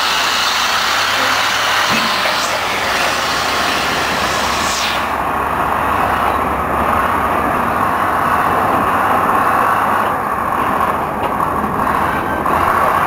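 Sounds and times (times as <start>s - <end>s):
continuous high tone: 0.0s - 8.5s
steel wheels running on rail: 0.0s - 13.0s.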